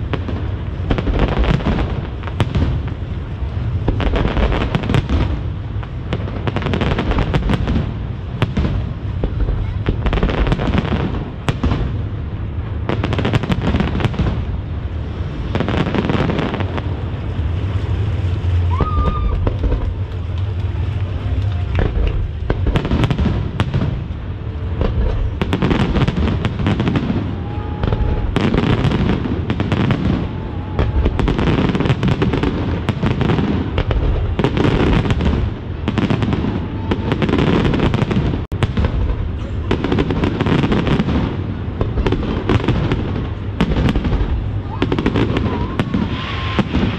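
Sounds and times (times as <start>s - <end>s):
fireworks bangs and crackles: 0.0s - 46.9s.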